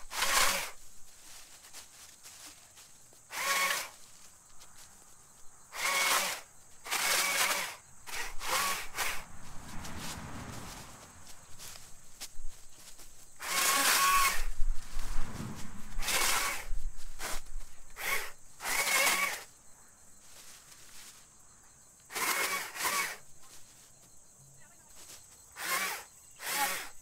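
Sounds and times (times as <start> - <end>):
battery chainsaw cutting brush: 0.0 - 0.9, 2.4 - 4.3, 5.7 - 10.8, 13.3 - 19.5, 22.0 - 23.3, 25.5 - 27.0.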